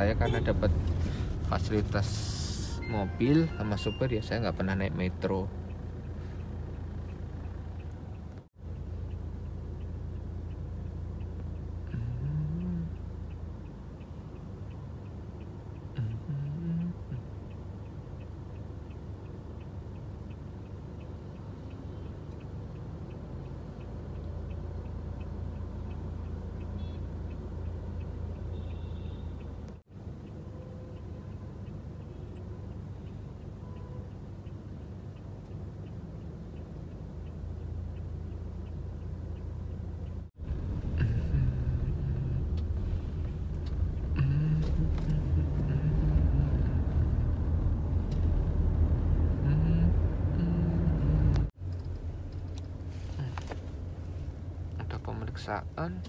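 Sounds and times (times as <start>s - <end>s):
faint regular ticking: 3.1s - 49.0s
car cabin rumble: 40.4s - 48.4s.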